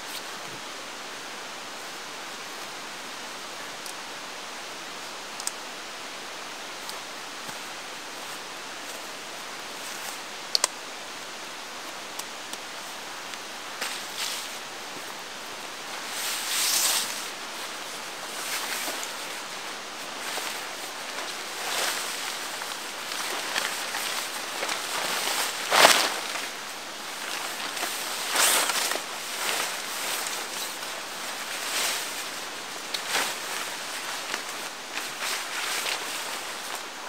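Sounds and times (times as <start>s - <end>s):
nylon rainfly rustling: 0.0s - 37.0s
steady hiss: 0.0s - 37.0s
light clicks: 10.5s - 10.8s.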